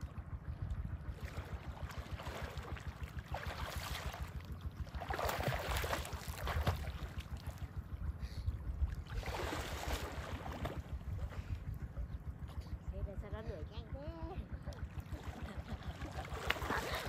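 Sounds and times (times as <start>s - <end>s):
wind buffeting microphone: 0.0s - 17.0s
swimmer splashing water: 1.0s - 7.8s, 9.0s - 11.5s, 14.7s - 17.0s.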